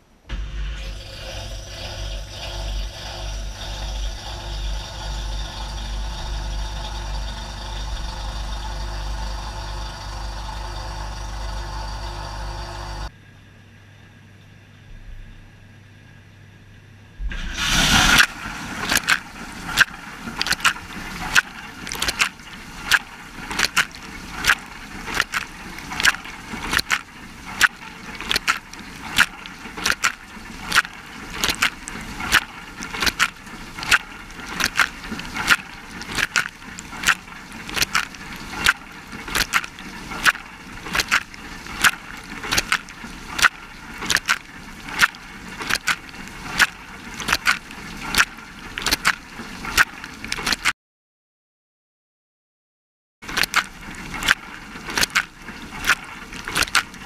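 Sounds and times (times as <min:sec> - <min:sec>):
faint low hum: 0:00.0 - 0:23.2
water jets splashing: 0:00.3 - 0:13.1, 0:17.2 - 0:50.7, 0:53.2 - 0:57.0.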